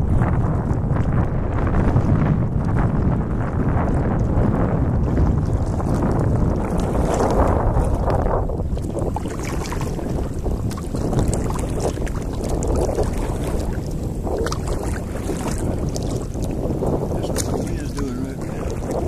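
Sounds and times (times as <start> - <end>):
wind rumbling on microphone: 0.0 - 19.0
light water splashes: 6.6 - 19.0.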